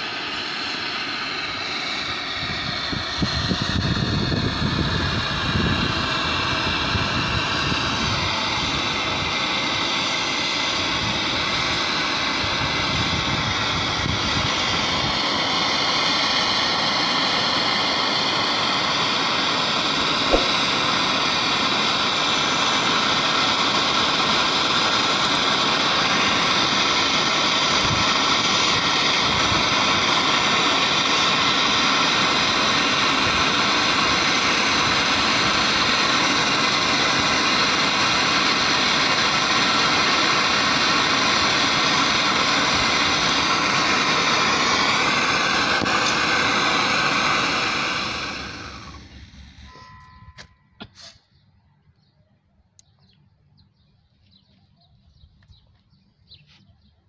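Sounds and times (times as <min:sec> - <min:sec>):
gas torch hissing: 0:00.0 - 0:50.2, 0:50.8 - 0:51.3
sharp click: 0:20.3 - 0:20.6.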